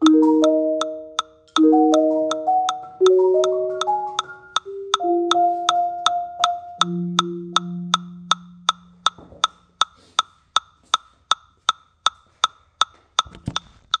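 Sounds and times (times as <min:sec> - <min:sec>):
low marimba note ringing: 0:00.0 - 0:09.0
metronome clicking: 0:00.0 - 0:14.0.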